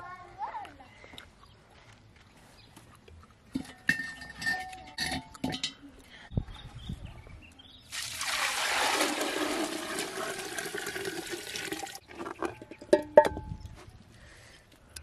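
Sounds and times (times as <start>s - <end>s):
water pouring into metal pot: 7.9s - 12.0s.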